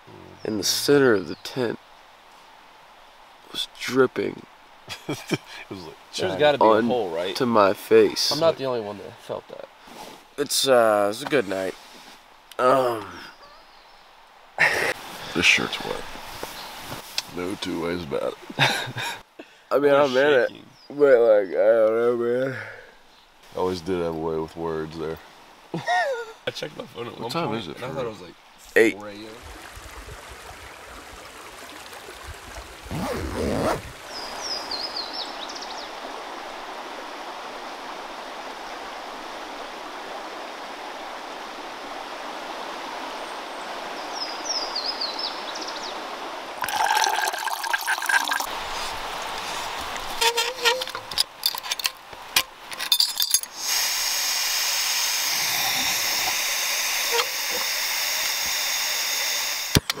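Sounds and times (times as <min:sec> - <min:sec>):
stream flowing: 0:00.0 - 1:00.0
gas stove burner hissing: 0:53.6 - 0:59.8.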